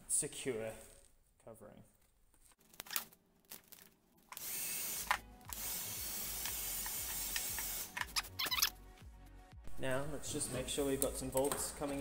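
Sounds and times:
heat gun blowing hiss: 4.4s - 8.0s.

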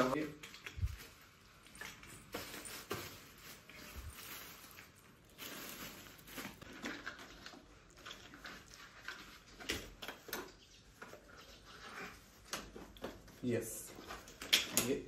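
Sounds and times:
plastic packaging crinkling: 0.0s - 10.3s.

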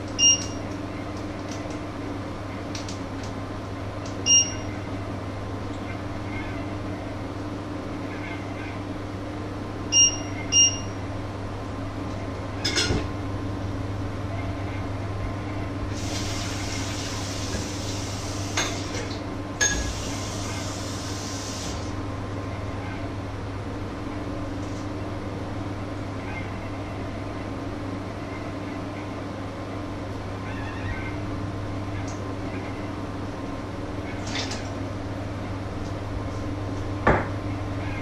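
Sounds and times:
short electronic beeps: 10.0s - 10.9s.

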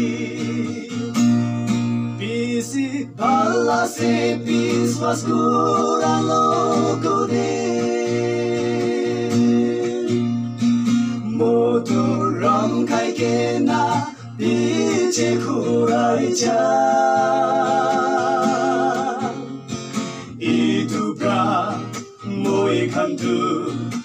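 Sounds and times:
person singing: 0.0s - 1.4s, 2.2s - 10.4s, 11.0s - 19.6s, 20.3s - 24.0s.

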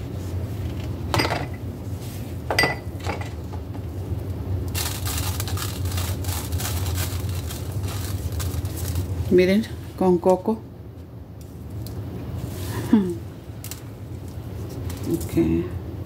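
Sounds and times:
low steady hum: 0.0s - 16.0s
dishes clinking: 1.1s - 1.6s, 2.5s - 3.4s.

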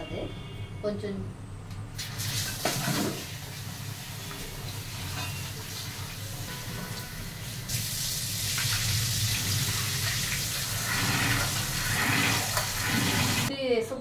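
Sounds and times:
tap water splashing into steel bowl: 2.0s - 3.3s.

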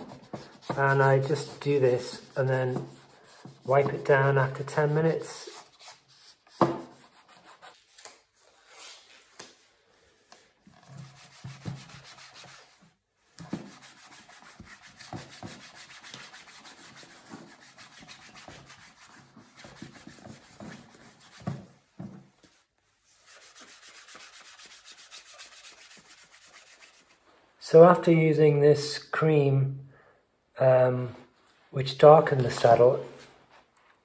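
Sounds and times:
cloth rubbing on leather: 13.6s - 27.3s.

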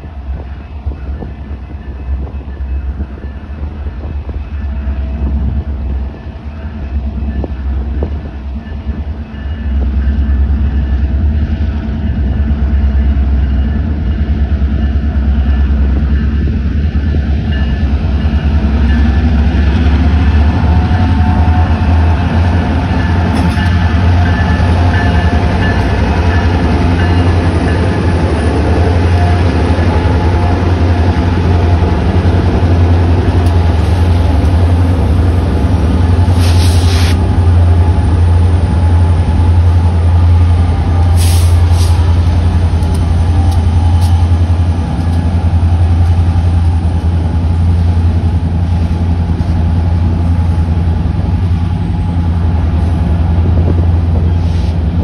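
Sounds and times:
diesel locomotives rumbling: 0.0s - 55.0s
brief hisses: 36.3s - 37.2s.

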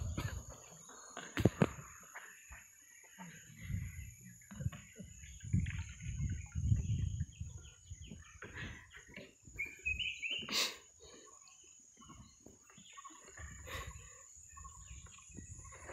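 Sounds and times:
wind rumble on microphone: 0.0s - 0.6s, 3.6s - 10.2s, 13.4s - 15.9s
birds chirping: 0.0s - 15.9s.

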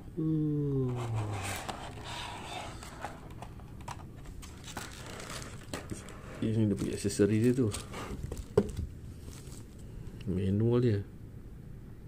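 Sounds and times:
person humming: 0.0s - 1.7s.

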